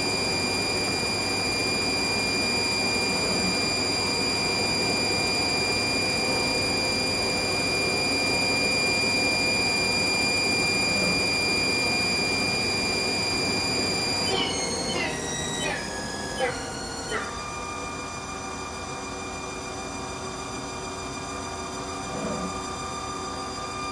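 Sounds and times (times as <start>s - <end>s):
lathe spindle whining: 0.0s - 23.9s
mechanical hum: 0.0s - 23.9s.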